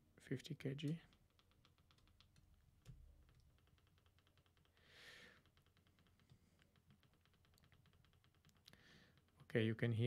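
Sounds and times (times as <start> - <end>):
soft breath: 4.7 - 5.6, 8.7 - 9.3.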